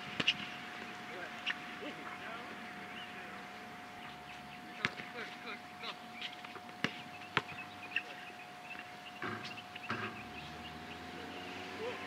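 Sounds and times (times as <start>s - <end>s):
birds chirping: 0.0s - 12.0s
faint steady whine: 0.0s - 12.0s
basketball bouncing: 6.8s - 7.6s.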